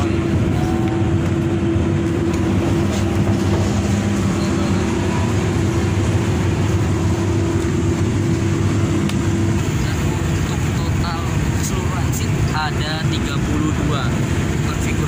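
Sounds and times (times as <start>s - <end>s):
bus diesel engine drone: 0.0s - 15.0s
road noise: 0.0s - 15.0s.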